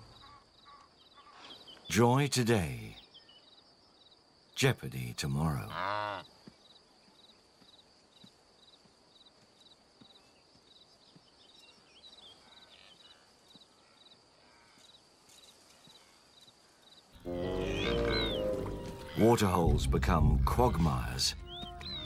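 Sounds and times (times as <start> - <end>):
high insect drone: 12.4 - 19.4
faint calls: 17.2 - 19.8.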